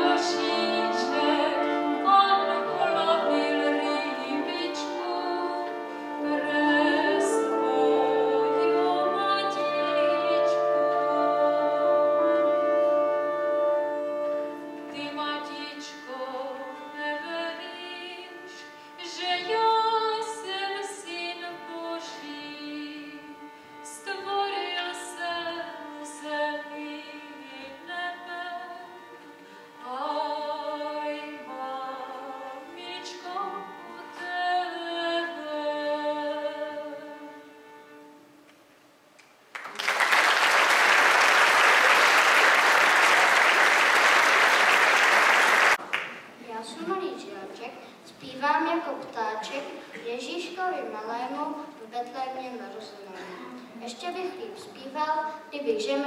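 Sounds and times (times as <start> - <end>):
carol singing: 0.0 - 38.2
audience applause: 39.5 - 46.2.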